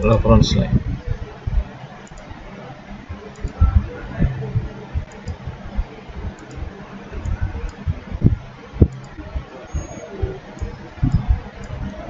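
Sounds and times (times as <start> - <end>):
low thumps: 0.0 - 12.0
steady low hum: 0.0 - 12.0
computer mouse clicks: 2.0 - 2.3, 3.3 - 3.8, 5.0 - 5.5, 6.3 - 6.6, 8.8 - 12.0.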